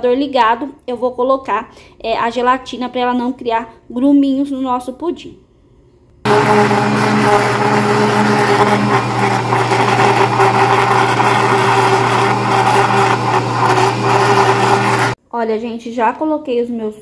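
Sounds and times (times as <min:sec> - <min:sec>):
blender motor whirring: 0:06.3 - 0:15.2.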